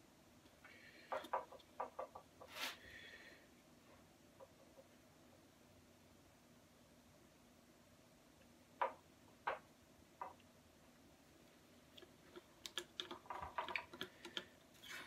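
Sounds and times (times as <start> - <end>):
hand tool scraping epoxy: 14.7 - 15.0.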